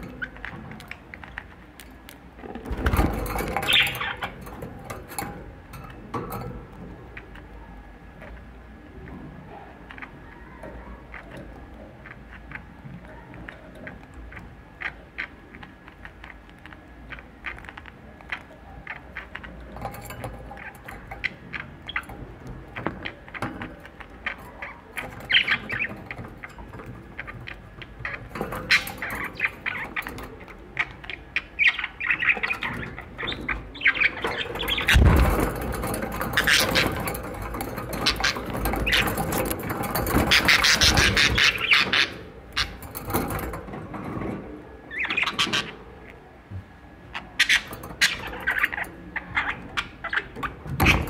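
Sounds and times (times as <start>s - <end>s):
small clicks and taps: 0.0s - 41.8s
budgerigar chirping and squawking: 24.3s - 37.3s, 37.9s - 42.8s, 44.9s - 45.9s, 47.1s - 51.0s.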